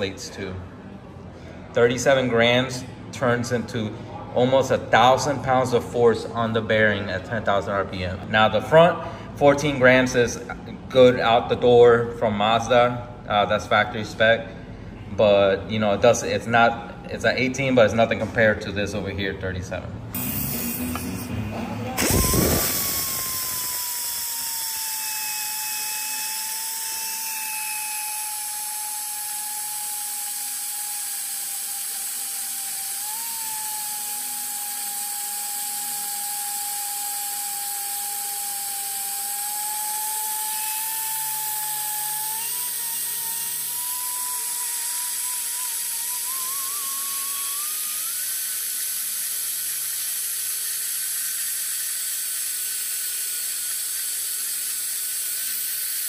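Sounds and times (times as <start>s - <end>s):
die grinder whining: 20.1s - 56.0s.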